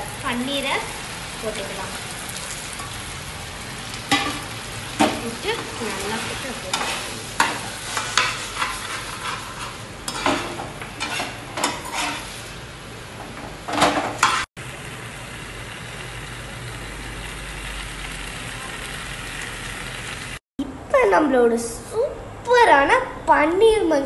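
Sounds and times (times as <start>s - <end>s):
food sizzling: 0.0s - 20.4s
spoon scraping a pan: 4.1s - 12.4s, 14.2s - 14.5s.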